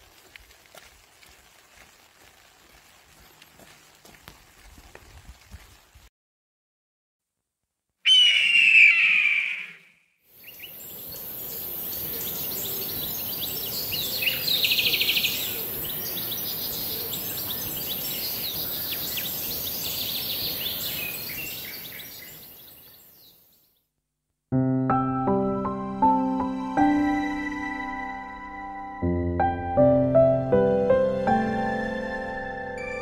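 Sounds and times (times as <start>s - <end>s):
loud bird call: 8.0s - 10.8s
birds chirping and singing: 10.4s - 23.7s.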